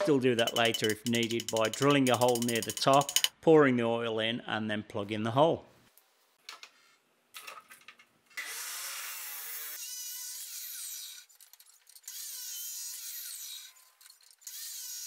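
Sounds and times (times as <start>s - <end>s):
metal bar knocking: 0.0s - 3.3s.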